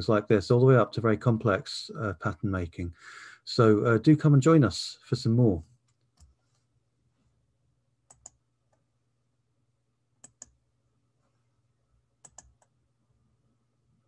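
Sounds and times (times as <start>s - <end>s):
computer controls clicking: 8.1s - 8.8s, 10.2s - 10.6s, 12.2s - 12.8s.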